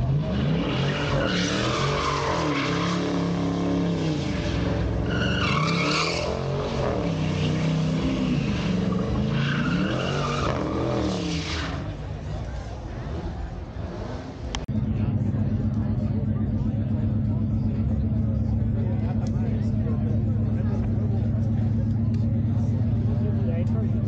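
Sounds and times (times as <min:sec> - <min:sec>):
car engine revving: 0:00.0 - 0:24.0
tyres squealing: 0:04.4 - 0:11.9.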